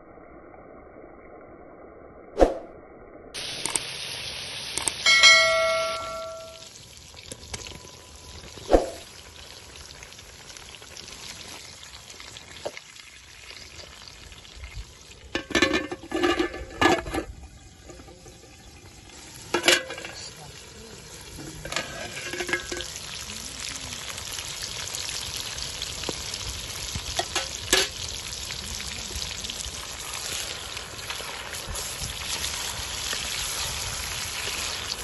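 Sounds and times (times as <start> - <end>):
food sizzling in a pan: 3.4 - 35.0
bell-like chime: 5.0 - 6.7.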